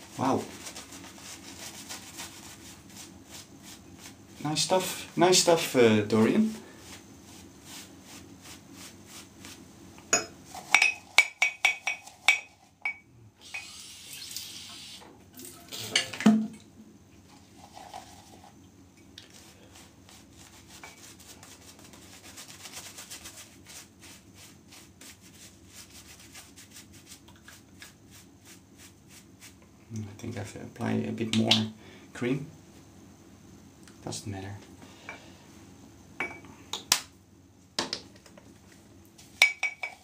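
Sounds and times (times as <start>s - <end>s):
shaving brush rubbing strokes: 0.0s - 9.7s, 17.3s - 18.6s, 19.3s - 29.6s.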